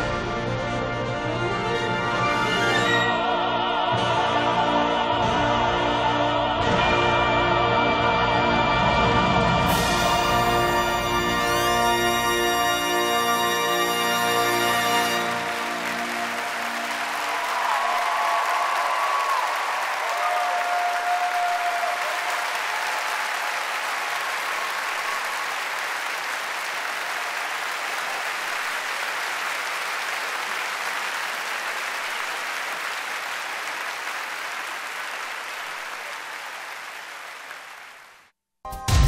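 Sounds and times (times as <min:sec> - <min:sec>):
large audience applauding: 0:09.7 - 0:38.4.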